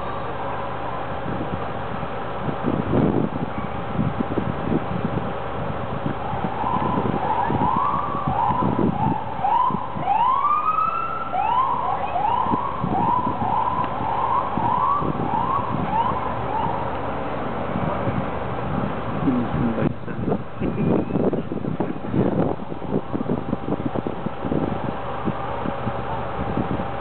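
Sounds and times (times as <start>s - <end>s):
low street noise: 0.0s - 27.0s
emergency siren yelping: 6.2s - 17.1s.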